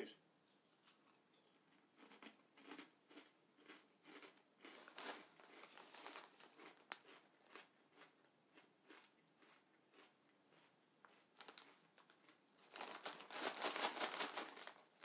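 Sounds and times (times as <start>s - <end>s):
crisps being chewed: 0.5s - 15.0s
plastic crisp packet crinkling: 0.8s - 8.1s, 8.9s - 15.0s.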